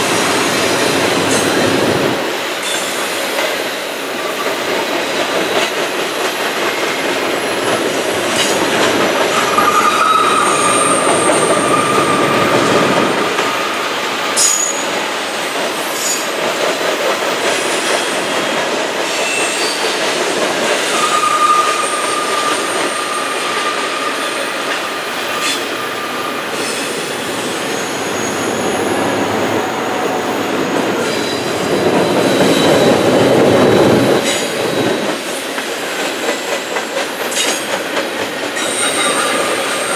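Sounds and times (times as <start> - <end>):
train wheels rumbling on rail: 0.0 - 39.9
wheel squeal: 9.3 - 13.8, 20.9 - 28.8.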